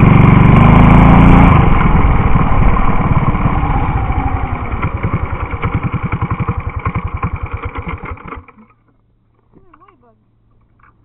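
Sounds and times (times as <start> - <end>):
mini bike engine revs falling: 3.2 - 8.7.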